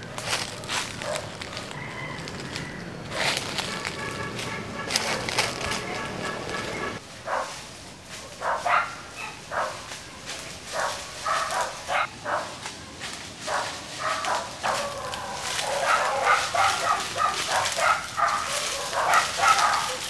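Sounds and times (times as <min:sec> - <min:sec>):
dog barking: 0:01.0 - 0:01.4, 0:07.2 - 0:07.6, 0:08.3 - 0:09.9, 0:10.7 - 0:12.6, 0:13.5 - 0:20.0.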